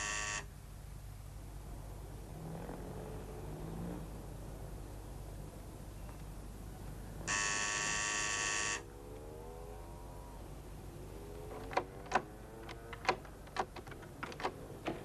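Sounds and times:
electric door buzzer: 0.0s - 0.4s, 7.3s - 8.8s
door lock clicking: 11.6s - 15.0s.

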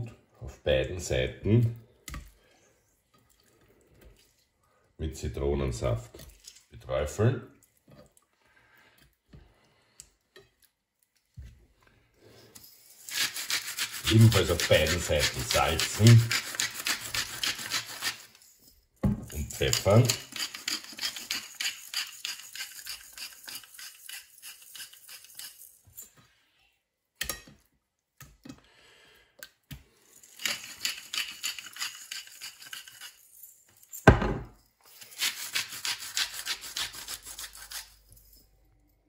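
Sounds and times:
pepper mill grinding: 12.6s - 18.6s, 19.3s - 25.8s, 30.1s - 34.0s, 34.8s - 38.4s.

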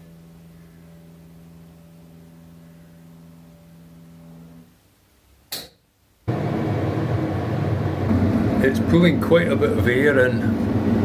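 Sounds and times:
air conditioner air rush: 0.0s - 11.0s
low steady hum: 0.0s - 11.0s
single click: 5.5s - 5.8s.

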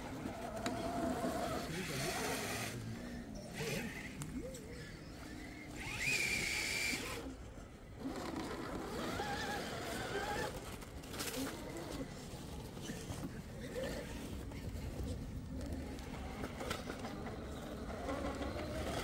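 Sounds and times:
small electric motor whining: 0.0s - 19.0s.

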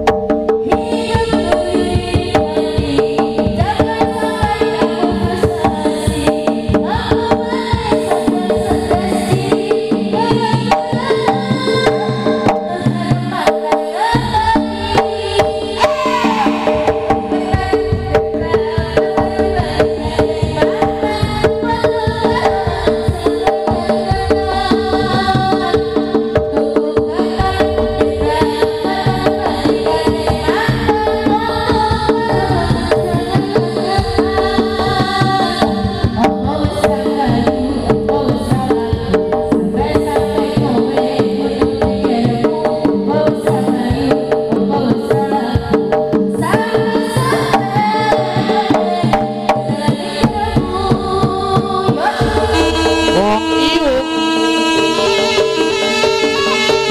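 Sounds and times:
drums beating fast rhythm: 0.0s - 56.9s
held tone: 52.2s - 56.9s.

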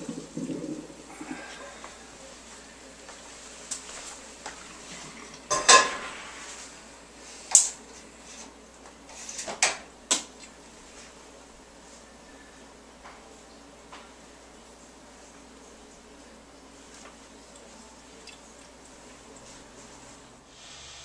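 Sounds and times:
metal pots clanking: 5.2s - 6.2s.

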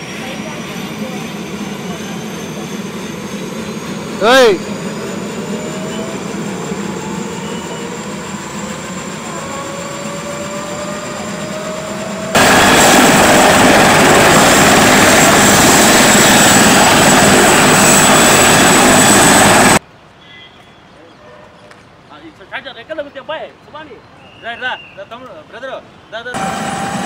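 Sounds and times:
helicopter turbine running: 0.0s - 19.8s, 26.3s - 27.0s.

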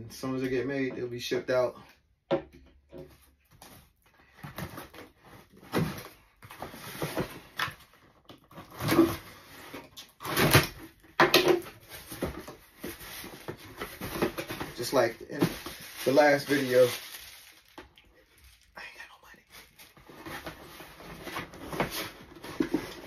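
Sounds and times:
packing tape ripping off cardboard: 8.5s - 18.0s.

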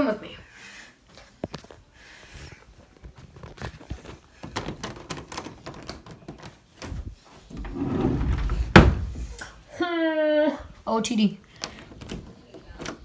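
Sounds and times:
rumbling rub against microphone: 6.8s - 9.4s.

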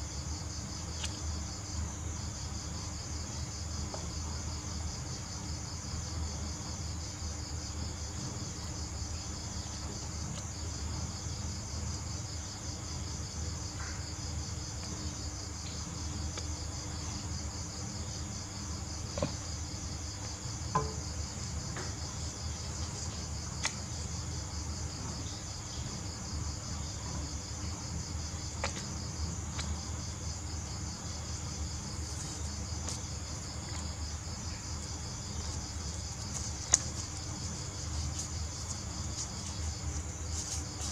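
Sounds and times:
crickets trilling: 0.0s - 40.9s
paper being handled: 35.4s - 40.9s.

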